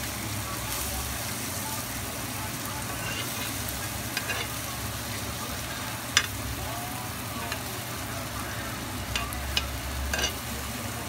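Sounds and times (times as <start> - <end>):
meat sizzling on a hot plate: 0.0 - 11.0
utensil clinking against plate: 2.9 - 4.6, 9.1 - 10.5
metal utensil scraping plate: 2.9 - 4.7, 9.1 - 10.6.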